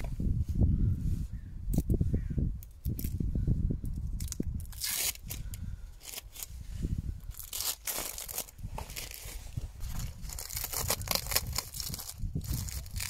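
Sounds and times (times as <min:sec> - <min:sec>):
masking tape tearing: 0:04.2 - 0:05.4, 0:07.4 - 0:09.4, 0:10.2 - 0:13.0.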